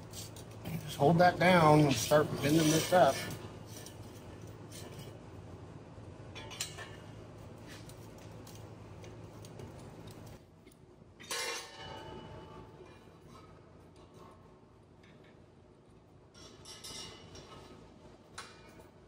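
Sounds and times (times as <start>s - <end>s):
steady low hum: 0.0s - 19.0s
sheet metal clinking and scraping: 0.1s - 5.2s, 11.2s - 14.3s, 16.3s - 17.8s.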